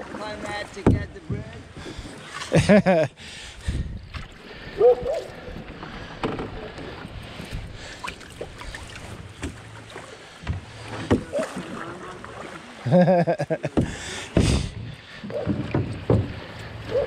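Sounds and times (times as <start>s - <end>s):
paddle splashing water: 0.0s - 17.0s
sharp knocks: 15.4s - 16.4s.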